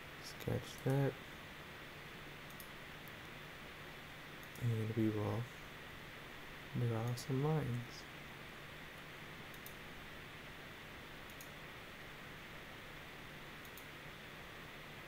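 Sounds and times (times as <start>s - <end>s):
microphone hiss: 0.0s - 15.0s
computer mouse clicking: 2.5s - 3.2s, 4.4s - 4.7s, 9.5s - 9.8s, 11.2s - 11.6s, 13.6s - 13.9s.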